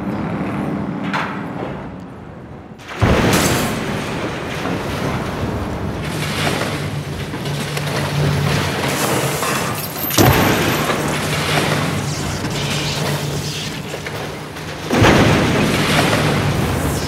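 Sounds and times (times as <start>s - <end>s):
explosion blast: 2.8s - 7.0s, 14.2s - 17.0s
rumbling roar: 10.2s - 17.0s.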